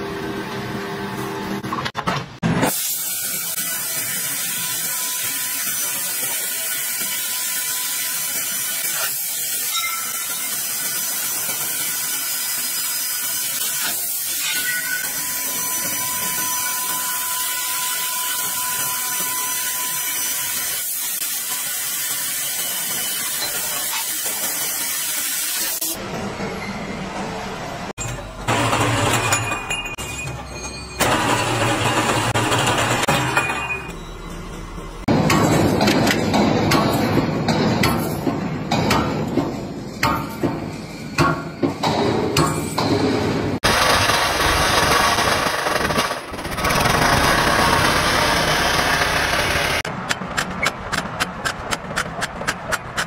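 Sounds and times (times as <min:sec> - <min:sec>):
machine sound: 0:13.5 - 0:37.4, 0:42.8 - 0:53.0.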